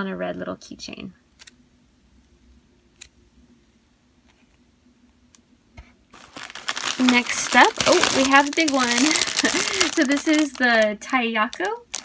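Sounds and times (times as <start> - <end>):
faint hum: 0.0 - 12.0
plastic bag rustling: 6.1 - 12.0.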